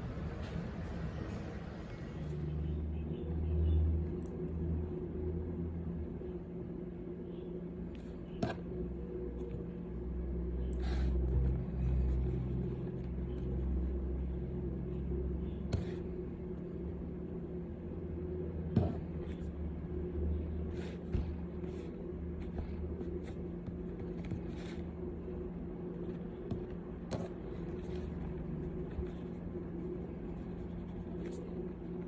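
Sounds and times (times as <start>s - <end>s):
faint hum: 0.0s - 32.0s.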